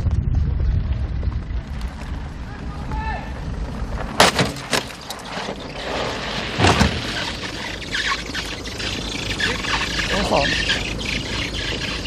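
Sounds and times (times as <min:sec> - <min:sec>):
steady low rumble: 0:00.0 - 0:12.0
car hitting car thud: 0:04.2 - 0:05.1
short high squeaks: 0:04.9 - 0:12.0.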